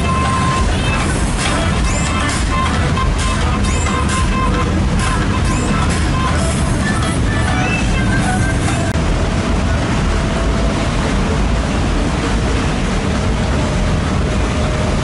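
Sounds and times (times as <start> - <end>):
motorboat engine rumble: 0.0 - 15.0
water rushing: 0.0 - 15.0
wind buffeting microphone: 4.7 - 15.0.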